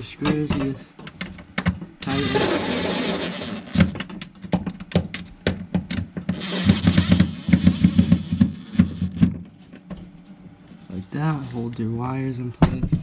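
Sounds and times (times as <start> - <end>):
driver motor whir: 2.0 - 4.0, 6.3 - 9.3.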